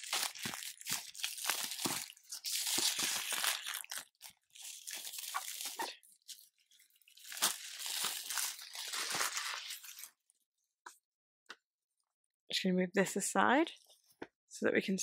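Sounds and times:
plastic shrink wrap crackling: 0.0 - 10.2.

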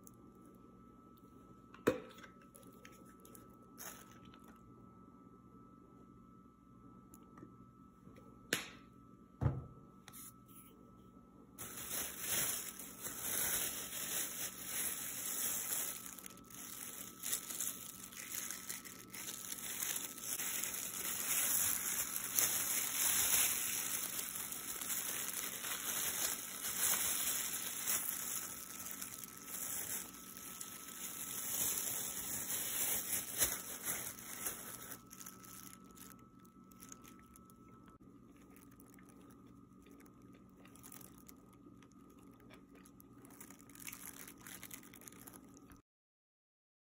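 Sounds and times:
plastic gloves crinkling: 2.6 - 4.6, 11.6 - 45.8.

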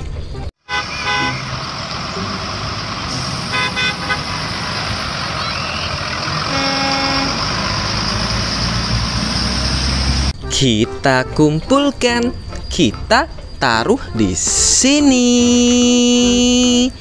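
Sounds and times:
buses driving on wet road: 0.0 - 10.4
bus horn toots: 0.6 - 8.3.

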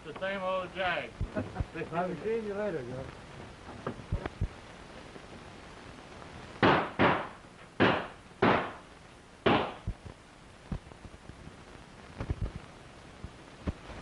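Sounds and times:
gunshots with echo: 6.6 - 8.8, 9.4 - 9.8.

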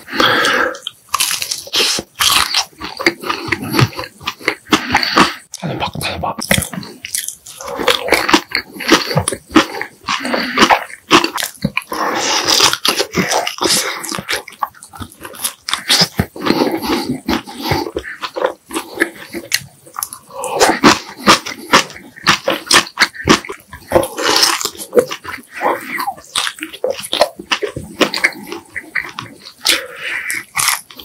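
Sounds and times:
biting and chewing: 0.0 - 31.0.

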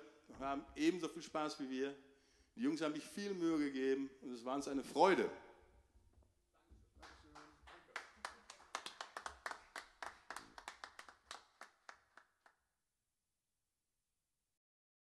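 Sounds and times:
hand clapping: 7.0 - 12.6.

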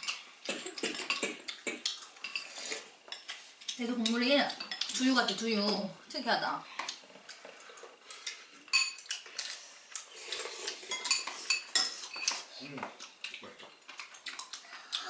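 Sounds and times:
utensils clinking on ceramic bowls: 8.7 - 9.6, 10.4 - 12.5.

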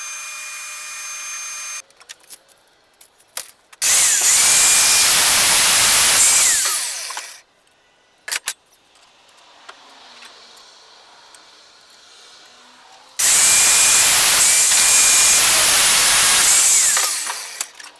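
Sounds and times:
angle grinder running: 0.0 - 1.8, 3.8 - 7.4, 13.2 - 17.8.

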